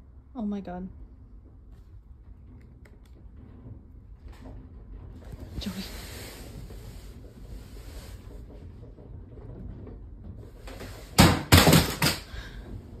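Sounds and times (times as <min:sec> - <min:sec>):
room shaking rumble: 0:00.0 - 0:13.0
loud clattering knocks: 0:08.2 - 0:13.0.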